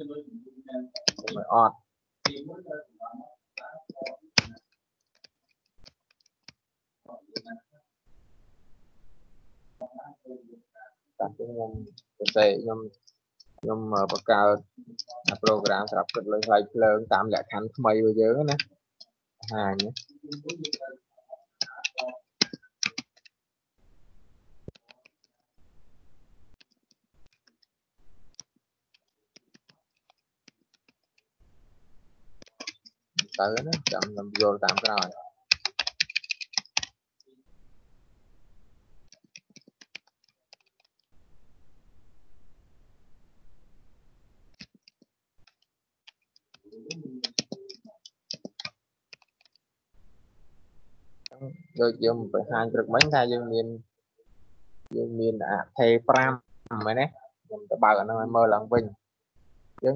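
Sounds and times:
keyboard typing: 0:00.9 - 0:02.4, 0:03.6 - 0:06.6, 0:11.8 - 0:12.7, 0:13.7 - 0:18.7, 0:19.4 - 0:20.9, 0:21.6 - 0:23.4, 0:24.7 - 0:25.3, 0:28.3 - 0:31.2, 0:32.4 - 0:37.0, 0:39.1 - 0:41.1, 0:44.5 - 0:49.6, 0:52.8 - 0:53.3.

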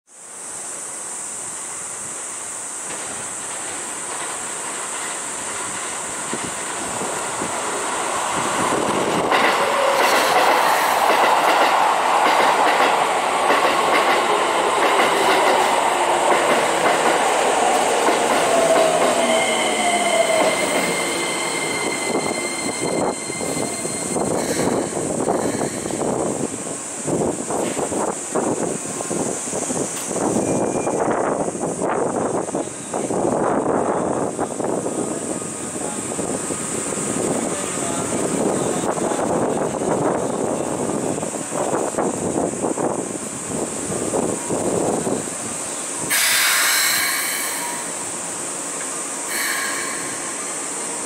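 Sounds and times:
train wheels clattering: 0:02.8 - 0:26.1
train brakes squealing: 0:17.6 - 0:26.3, 0:30.0 - 0:31.5, 0:44.7 - 0:51.0.

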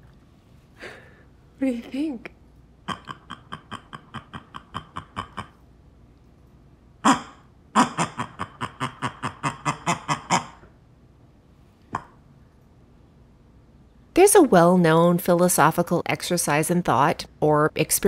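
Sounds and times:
toy making fart sounds: 0:02.9 - 0:05.6.

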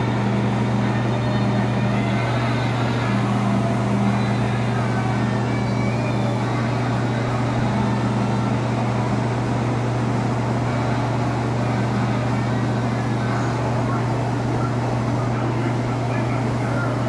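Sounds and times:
low machine hum: 0:00.0 - 0:17.0.

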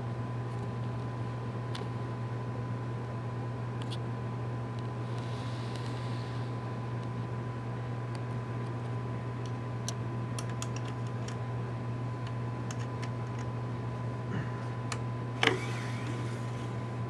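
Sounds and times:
low electrical hum: 0:00.0 - 0:17.0
thin high whine: 0:15.4 - 0:17.0.

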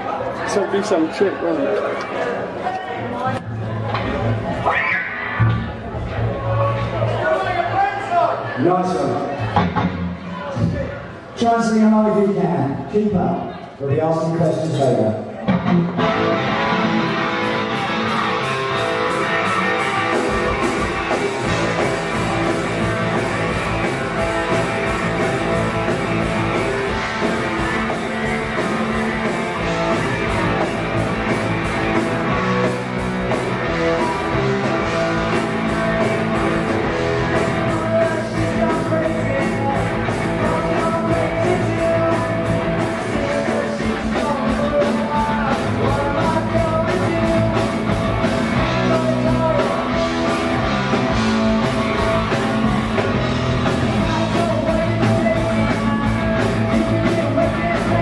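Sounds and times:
drums: 0:02.9 - 0:58.0
bass guitar: 0:03.0 - 0:07.7, 0:09.0 - 0:11.1, 0:15.4 - 0:58.0
electric guitar: 0:03.3 - 0:07.1, 0:15.3 - 0:58.0.

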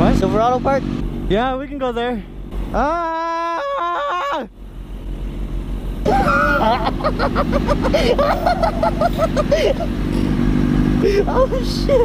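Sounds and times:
motorcycle engines idling: 0:00.0 - 0:12.0
person laughing: 0:02.8 - 0:04.5, 0:06.1 - 0:10.0, 0:11.0 - 0:12.0.

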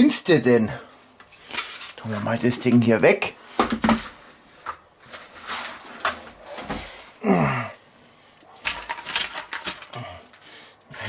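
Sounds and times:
steel pans knocking and scraping: 0:08.6 - 0:10.0.

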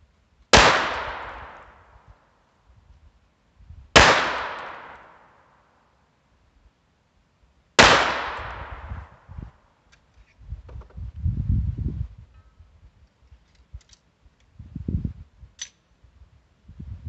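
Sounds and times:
pistol shots with echo: 0:00.5 - 0:01.7, 0:04.0 - 0:05.3, 0:07.8 - 0:08.9.

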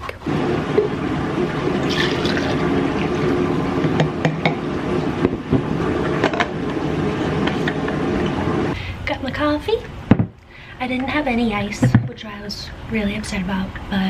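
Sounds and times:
coffee pouring into tumbler: 0:01.5 - 0:03.4.

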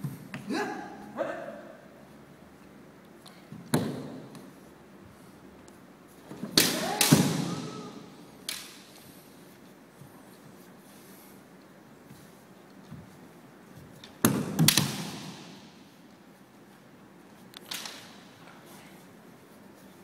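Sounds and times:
person shouting: 0:00.5 - 0:01.8, 0:06.6 - 0:08.2
bamboo sword strikes: 0:06.4 - 0:07.7, 0:14.2 - 0:15.6.

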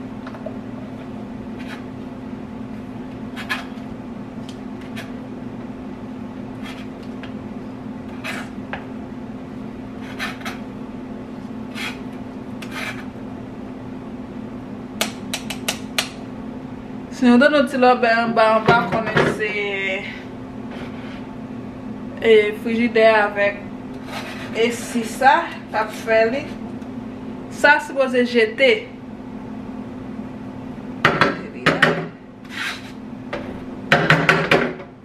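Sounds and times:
steady low hum: 0:00.0 - 0:35.0
spoon scraping a mesh strainer: 0:10.0 - 0:10.6, 0:11.7 - 0:13.1, 0:32.5 - 0:33.0.

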